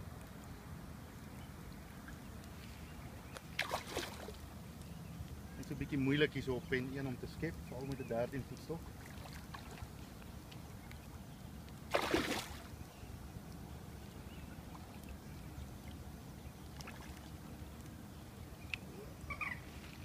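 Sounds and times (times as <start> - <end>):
wind: 0.0 - 20.0
fish splashing at water surface: 3.5 - 4.4, 11.9 - 12.7.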